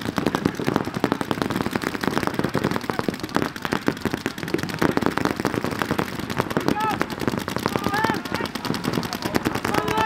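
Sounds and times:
paintball markers firing: 0:00.0 - 0:10.0.

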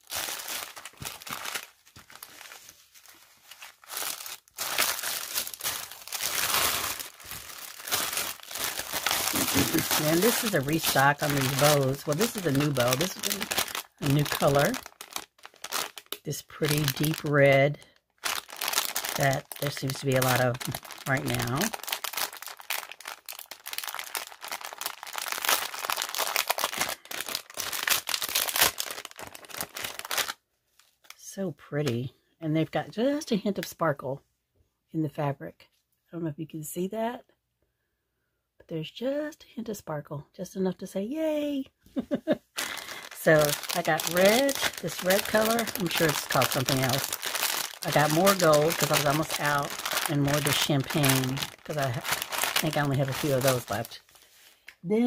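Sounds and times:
plastic bags crinkling: 0:00.0 - 0:31.2, 0:42.6 - 0:54.8.

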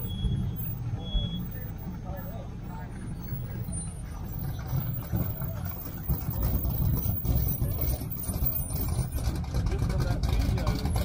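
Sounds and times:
car engine rumbling: 0:00.0 - 0:11.0.

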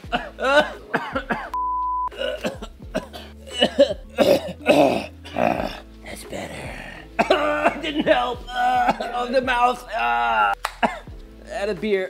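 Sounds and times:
man coughing: 0:00.0 - 0:05.8, 0:07.1 - 0:09.4, 0:10.8 - 0:11.1
censor bleep: 0:01.6 - 0:02.1.

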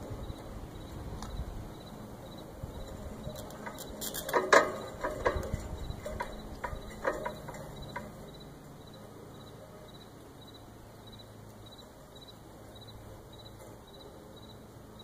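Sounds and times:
antenna mast clicking and knocking: 0:02.8 - 0:08.4.

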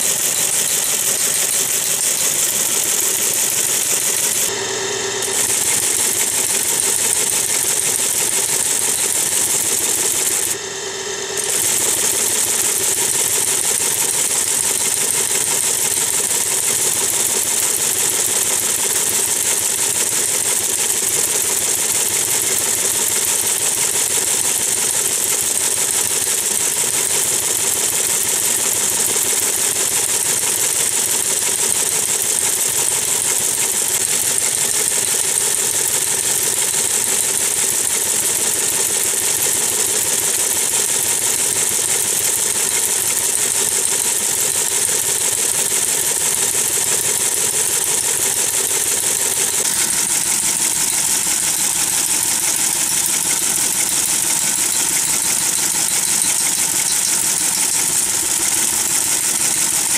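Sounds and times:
machine drive running: 0:00.0 - 0:59.9
teleprinter mechanical clatter: 0:00.0 - 0:59.9.

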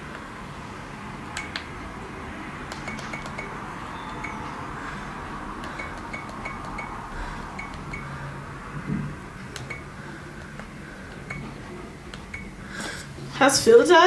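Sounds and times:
sharp clicks: 0:01.4 - 0:01.7, 0:02.7 - 0:03.6, 0:05.6 - 0:08.0.

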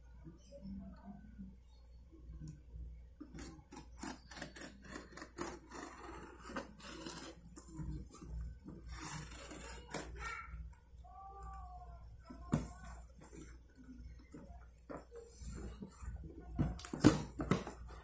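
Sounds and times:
knife cutting tape and cardboard: 0:03.4 - 0:08.2, 0:08.9 - 0:10.1.

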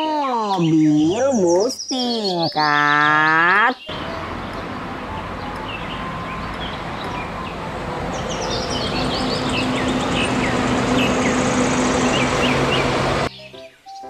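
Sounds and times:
birds chirping: 0:00.0 - 0:14.0
street traffic: 0:02.6 - 0:13.3
bus engine driving past: 0:03.9 - 0:13.4.

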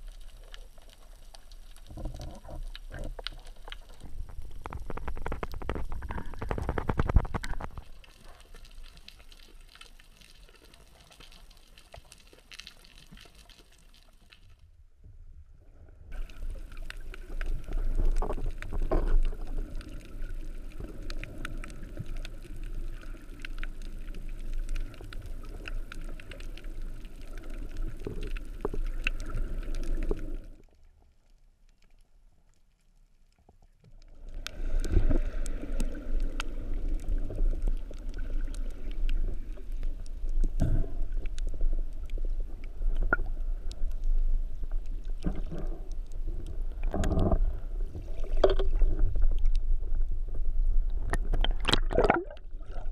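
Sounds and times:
small clicks and crackles: 0:00.0 - 0:14.7, 0:16.1 - 0:52.9
water rushing underwater: 0:16.1 - 0:30.6, 0:34.1 - 0:52.9.

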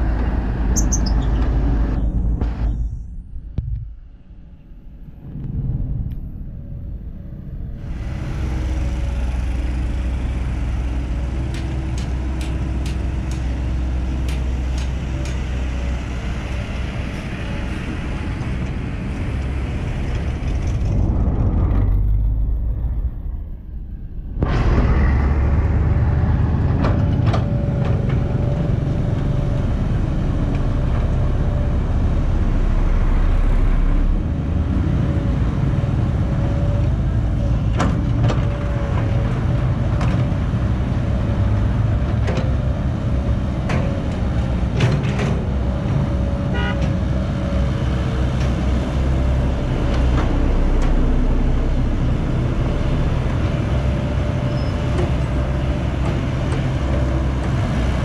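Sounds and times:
diesel engine under load: 0:00.0 - 0:58.0
excavator clanks: 0:11.3 - 0:15.9, 0:37.6 - 0:40.6, 0:43.5 - 0:47.1.

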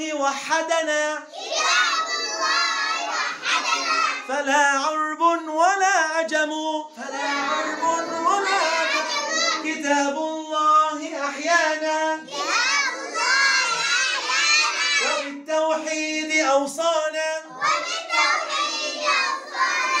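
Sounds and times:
children chanting in unison: 0:01.2 - 0:04.4, 0:07.0 - 0:10.0, 0:11.0 - 0:16.0, 0:17.4 - 0:20.0.

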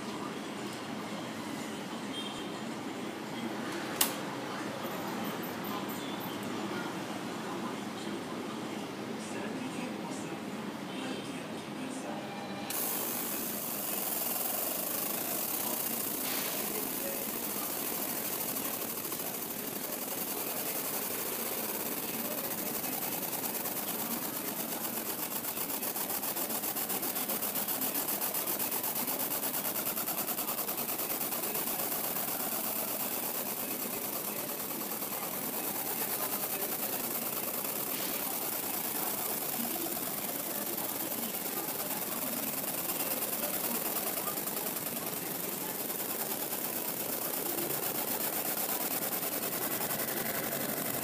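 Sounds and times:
laser engraver buzzing hiss: 0:12.7 - 0:51.0.

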